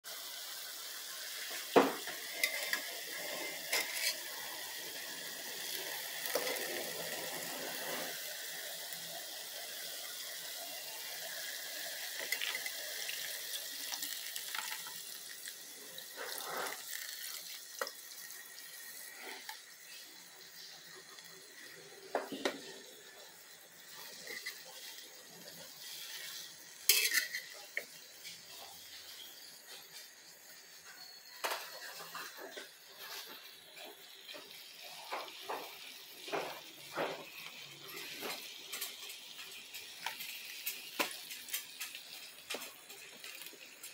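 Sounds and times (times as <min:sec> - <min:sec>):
food sizzling in a pan: 0:00.0 - 0:43.9
metal spatula scraping a pan: 0:01.6 - 0:04.8, 0:05.6 - 0:08.3, 0:15.9 - 0:17.9, 0:23.9 - 0:29.9, 0:30.8 - 0:33.4
liquid pouring: 0:10.3 - 0:28.5.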